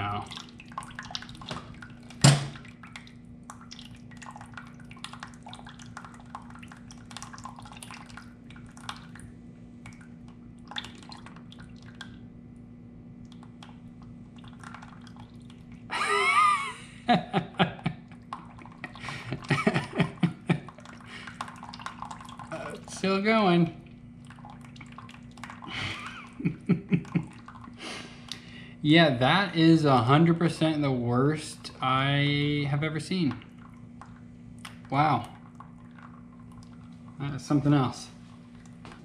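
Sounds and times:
water dripping and trickling into pan: 0:00.0 - 0:12.3, 0:13.2 - 0:15.9, 0:20.5 - 0:23.1, 0:23.9 - 0:26.2, 0:33.2 - 0:37.4.

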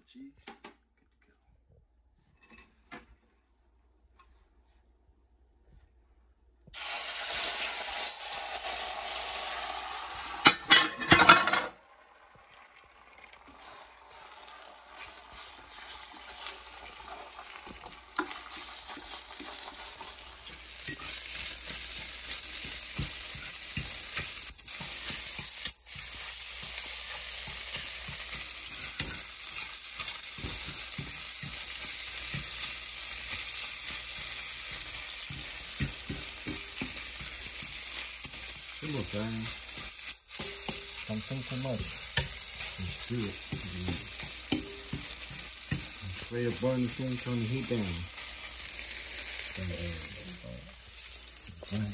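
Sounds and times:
eggs sizzling in a frying pan: 0:06.7 - 0:51.9
spatula scraping a pan: 0:13.5 - 0:49.6.

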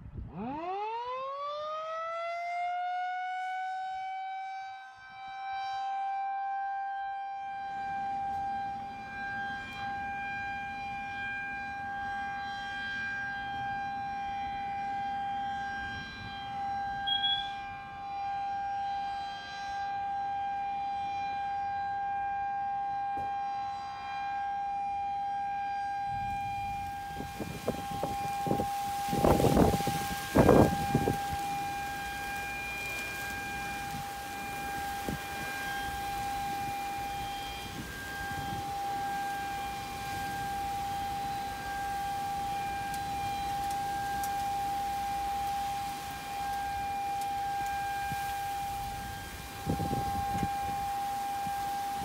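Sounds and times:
wind buffeting microphone: 0:00.0 - 0:00.4, 0:26.0 - 0:52.0
warning siren: 0:00.0 - 0:52.0
wind: 0:00.0 - 0:52.0
heavy rain: 0:26.2 - 0:52.0.

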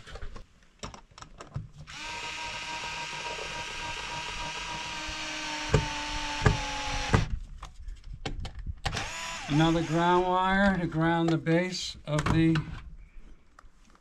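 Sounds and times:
cordless screwdriver motor running: 0:01.9 - 0:07.3, 0:08.9 - 0:10.3
sharp knocks: 0:05.7 - 0:07.3.

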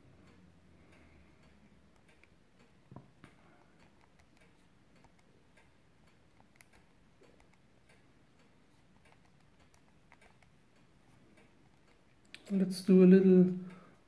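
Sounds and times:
calculator keys clicking: 0:03.8 - 0:05.3, 0:09.0 - 0:10.5.

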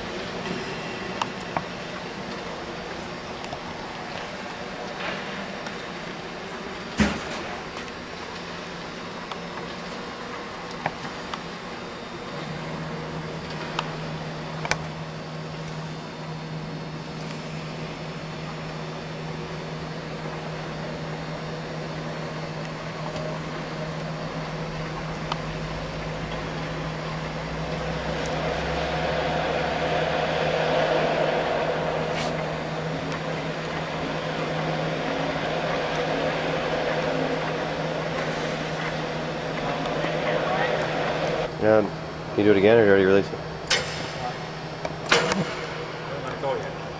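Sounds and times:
electric motor humming: 0:16.7 - 0:41.8.

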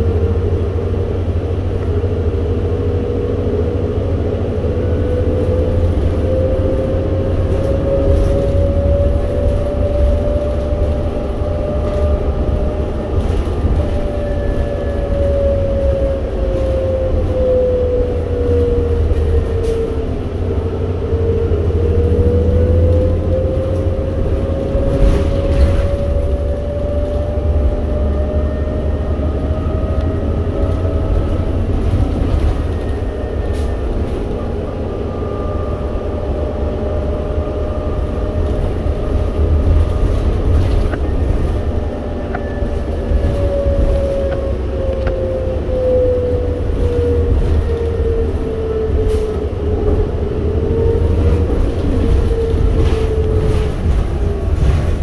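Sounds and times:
bus engine and road rumble: 0:00.0 - 0:55.0
drivetrain whine: 0:00.0 - 0:55.0.

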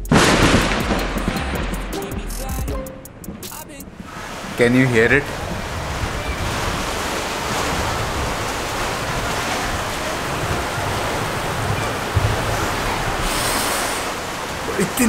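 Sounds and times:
heavy rain pouring: 0:00.0 - 0:02.7, 0:03.6 - 0:15.0
wind gusts on microphone: 0:03.9 - 0:14.8.

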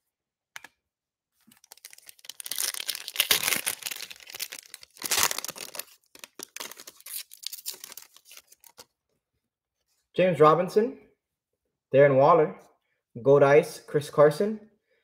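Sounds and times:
foil wrapper tearing and crinkling: 0:01.5 - 0:08.9.

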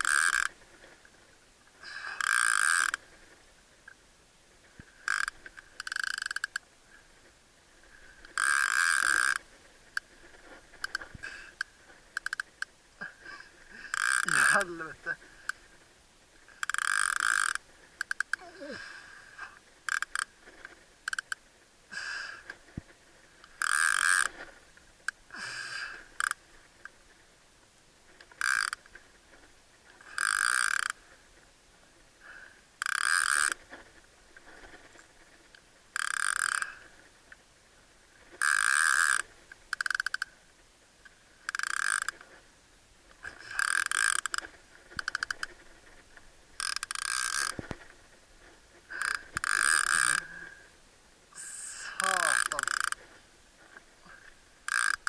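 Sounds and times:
fishing reel rasping clicks: 0:00.0 - 0:00.6, 0:02.0 - 0:03.0, 0:05.0 - 0:06.6, 0:08.2 - 0:10.1, 0:10.8 - 0:12.7, 0:13.9 - 0:14.7, 0:16.6 - 0:18.4, 0:19.9 - 0:20.3, 0:21.0 - 0:21.4, 0:23.4 - 0:24.4, 0:26.0 - 0:26.4, 0:28.2 - 0:28.9, 0:30.1 - 0:31.0, 0:32.8 - 0:33.6, 0:36.0 - 0:36.8, 0:38.4 - 0:40.4, 0:41.4 - 0:42.2, 0:43.4 - 0:45.6, 0:46.6 - 0:47.6, 0:49.0 - 0:50.4, 0:51.4 - 0:53.0, 0:54.7 - 0:55.0.

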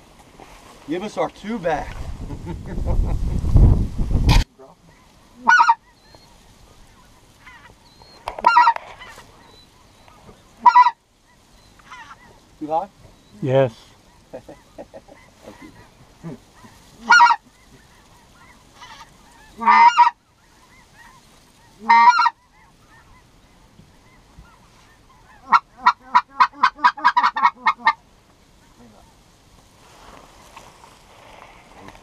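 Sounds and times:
goose clucking: 0:04.3 - 0:12.5, 0:13.9 - 0:28.0
goose calling: 0:04.3 - 0:28.0.

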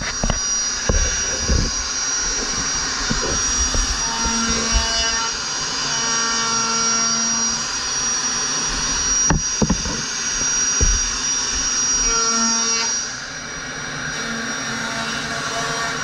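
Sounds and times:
electric router whining: 0:00.0 - 0:16.0
knocks: 0:09.2 - 0:11.7.

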